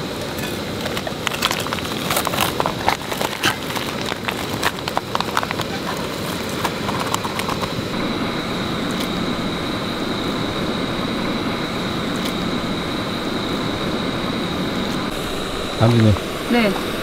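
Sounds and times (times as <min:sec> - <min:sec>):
stream water rushing: 0:00.0 - 0:17.0.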